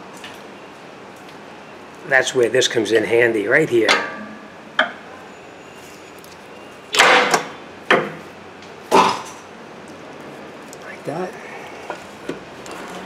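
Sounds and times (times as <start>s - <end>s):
pry bar knocking and scraping metal: 3.9s - 5.0s.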